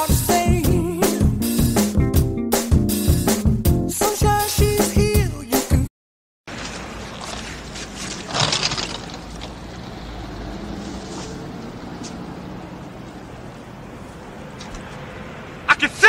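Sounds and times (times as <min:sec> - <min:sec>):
city traffic noise: 0:06.5 - 0:16.0.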